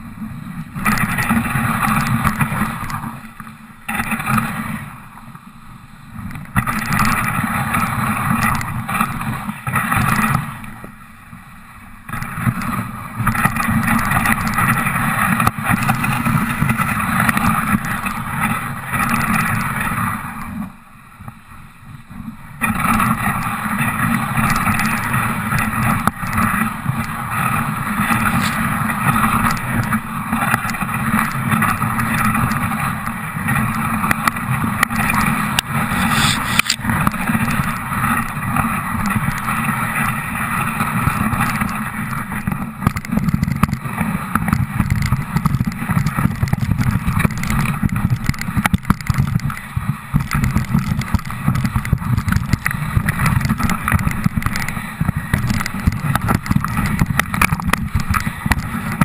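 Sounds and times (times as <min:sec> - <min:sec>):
sled rumbling: 0:00.0 - 0:05.2, 0:06.2 - 0:11.0, 0:11.8 - 0:20.8, 0:22.0 - 0:59.0
sled runners scraping on snow: 0:22.6 - 0:59.0.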